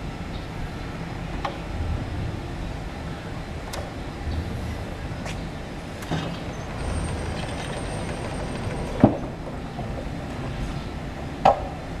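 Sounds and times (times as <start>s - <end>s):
electric truck running noise: 5.9s - 10.4s.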